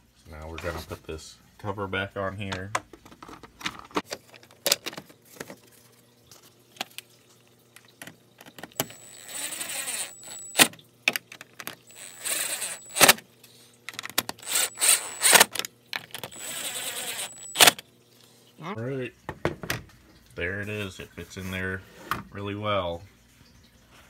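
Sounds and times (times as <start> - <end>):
cordless drill motor whine: 8.8 - 10.7, 11.9 - 13.2, 14.4 - 15.5, 16.2 - 17.8.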